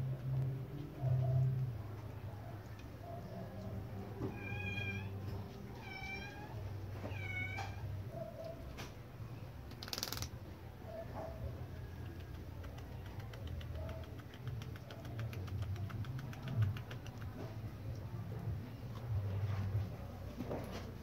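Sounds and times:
cat meowing: 4.2s - 7.9s.

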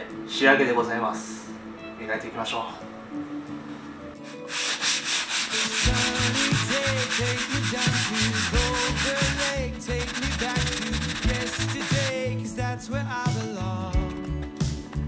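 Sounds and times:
sanding block rubbing on wood: 4.3s - 12.2s.

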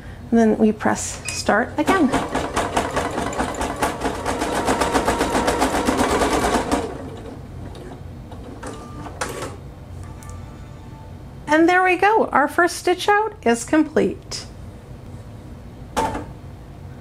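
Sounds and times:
embroidery machine stitching: 1.8s - 9.6s.

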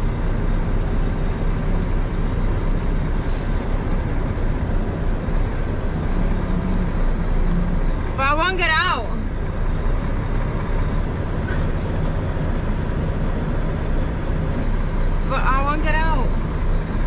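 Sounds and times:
diesel truck engine rumbling: 0.0s - 17.0s
air brakes hissing: 3.1s - 3.9s.

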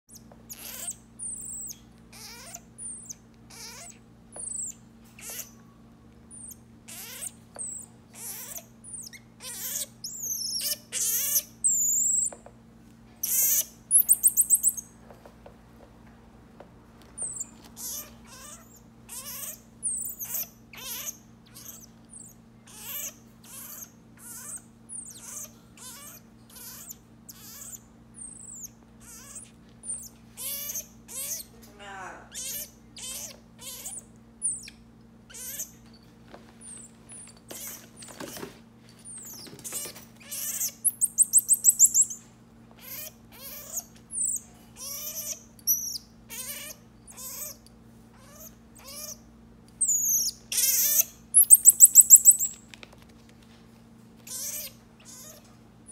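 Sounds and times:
marmoset chirping calls: 0.1s - 5.6s, 6.3s - 12.4s, 13.2s - 14.9s, 17.2s - 31.5s, 32.3s - 35.9s, 40.2s - 47.6s, 48.2s - 49.2s, 49.8s - 52.6s, 54.3s - 55.4s
marmoset rapid trilled calls: 0.1s - 5.6s, 6.3s - 12.3s, 13.2s - 14.9s, 17.2s - 31.5s, 32.3s - 35.7s, 40.3s - 42.2s, 42.9s - 47.6s, 49.8s - 52.6s.

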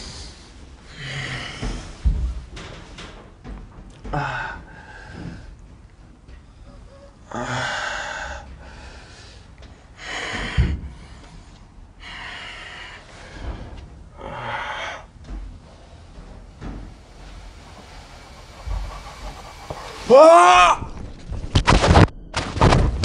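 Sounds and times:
person breathing hard: 0.0s - 2.1s, 4.1s - 5.7s, 7.3s - 21.1s.

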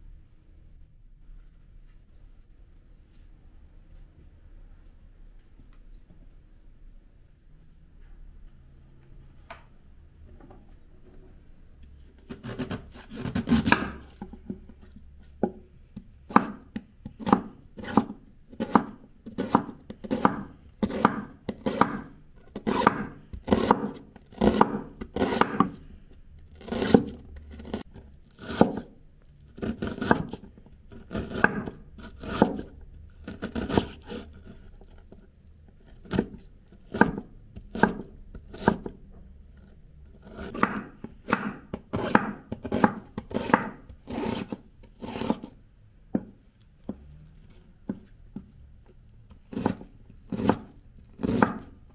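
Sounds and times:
knife cutting onion: 12.2s - 14.6s, 15.4s - 35.2s, 35.8s - 39.0s, 40.2s - 45.6s, 49.3s - 51.9s.

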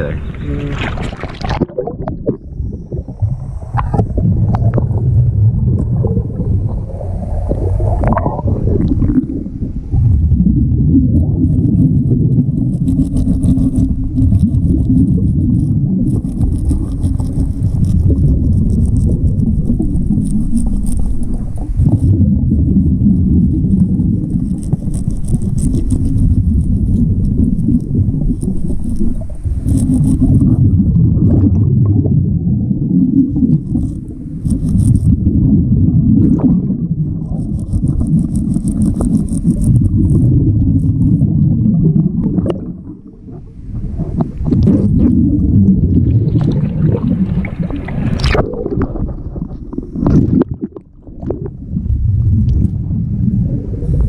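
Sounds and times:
exhaled air bubbles: 0.0s - 54.0s
underwater rumble of moving water: 0.0s - 54.0s
fine high crackling: 11.2s - 30.6s.

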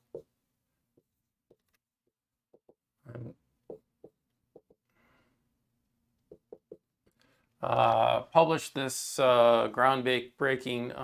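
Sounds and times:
marker writing on whiteboard: 1.0s - 2.8s, 6.3s - 6.8s.

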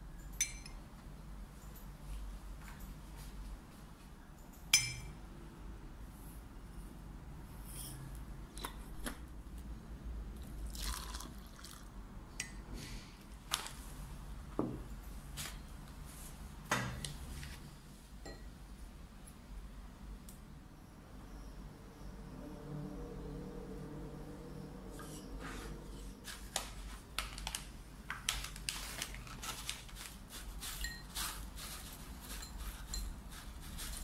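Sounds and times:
glass and cutlery taps: 0.4s - 0.8s, 4.8s - 5.1s, 18.2s - 18.5s
metal spoon clinking glass mug: 0.4s - 0.8s, 4.7s - 5.1s, 30.8s - 31.1s, 32.3s - 33.1s
water pouring: 10.5s - 11.9s.

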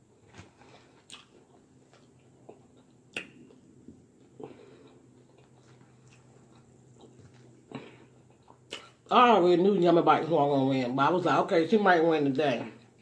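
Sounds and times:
soft chewing: 0.0s - 9.1s.

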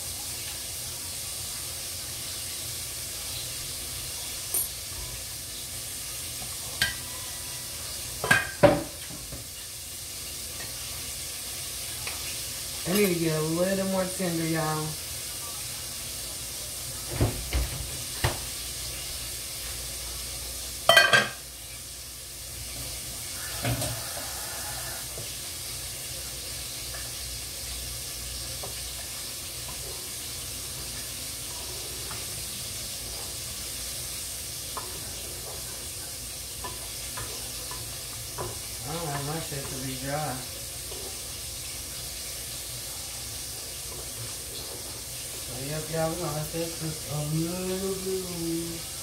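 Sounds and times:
food sizzling in a pot: 0.0s - 49.0s
cookware clattering: 6.8s - 7.1s, 8.2s - 9.2s, 20.9s - 21.4s.

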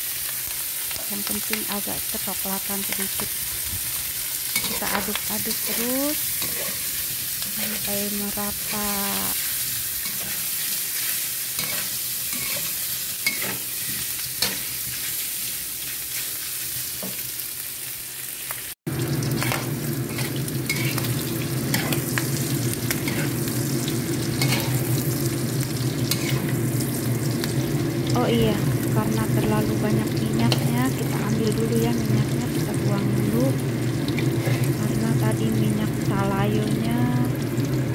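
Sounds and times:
meat sizzling in oil: 0.0s - 37.9s
metal spatula scraping pan: 4.6s - 7.9s, 11.6s - 14.7s, 19.4s - 21.1s, 24.4s - 24.8s, 26.1s - 26.5s, 34.2s - 34.8s.

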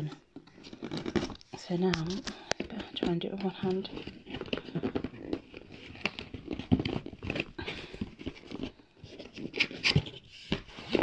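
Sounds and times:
cardboard box being opened: 0.0s - 11.0s.

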